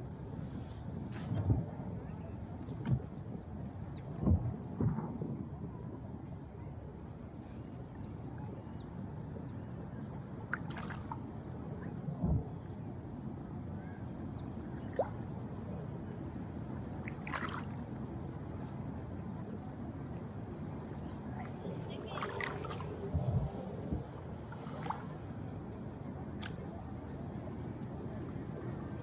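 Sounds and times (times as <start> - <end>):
water sloshing around wading legs: 10.5 - 11.3, 17.0 - 17.8, 21.3 - 23.6.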